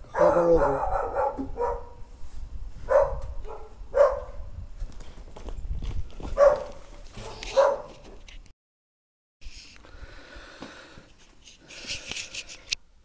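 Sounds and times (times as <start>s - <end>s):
dog barking: 0.0s - 2.0s, 2.9s - 4.5s, 6.3s - 8.0s.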